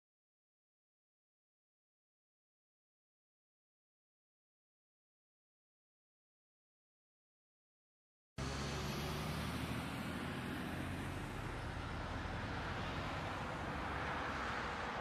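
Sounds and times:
car engine hum: 8.4 - 15.0
traffic noise: 8.4 - 15.0.

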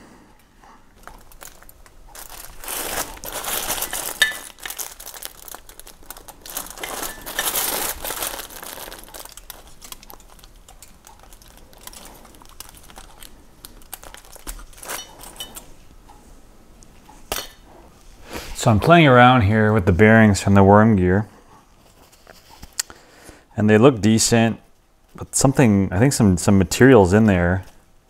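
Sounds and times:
aluminium foil crinkling: 1.0 - 15.8.

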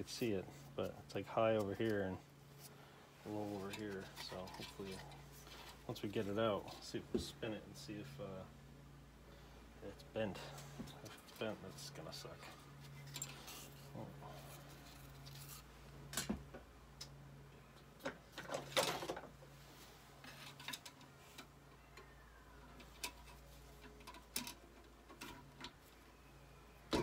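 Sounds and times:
metal tools clinking and knocking: 12.9 - 13.8.

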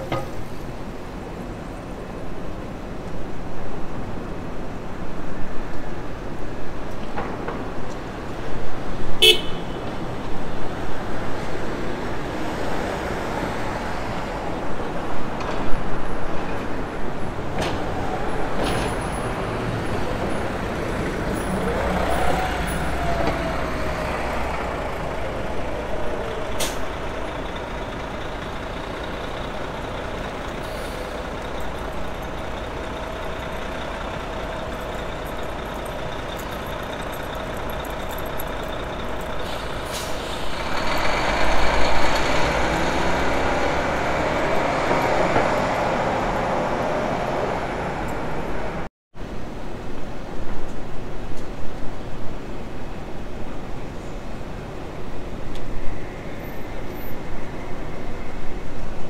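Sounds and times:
street traffic: 0.0 - 59.0
bus driving past: 7.6 - 48.9.

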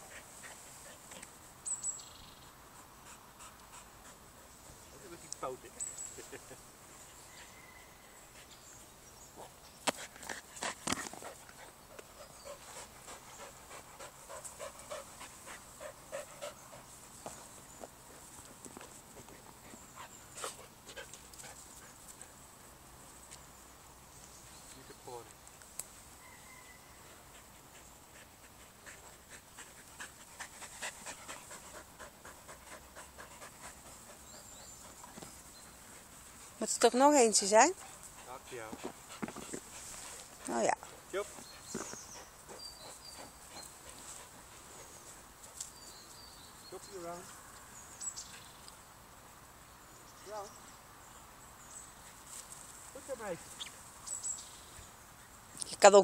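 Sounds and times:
dog panting: 0.0 - 1.3, 2.7 - 5.6, 9.9 - 17.0, 18.1 - 22.4, 27.1 - 45.6.

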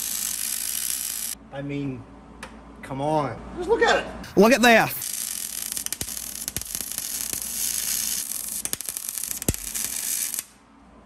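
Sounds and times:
welder arc crackling hiss: 0.0 - 1.4, 5.0 - 10.5.

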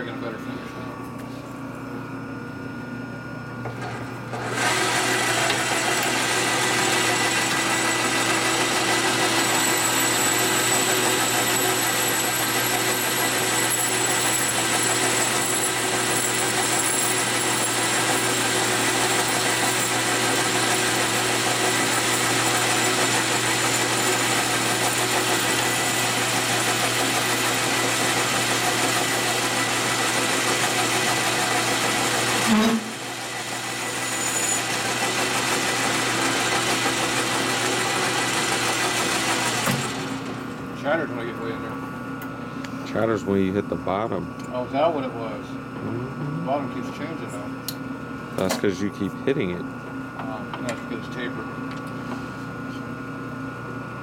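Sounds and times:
machine tool cutting metal: 4.4 - 40.2.

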